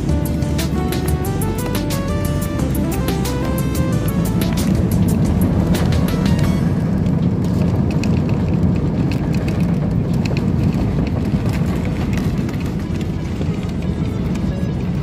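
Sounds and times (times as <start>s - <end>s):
airplane cabin rumble: 0.0s - 15.0s
light clicks and rattles: 7.1s - 14.8s.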